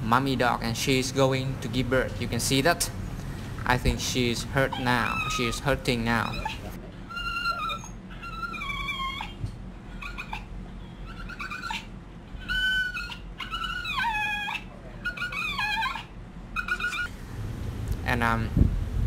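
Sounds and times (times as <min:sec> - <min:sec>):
dog whining: 0:04.6 - 0:17.1.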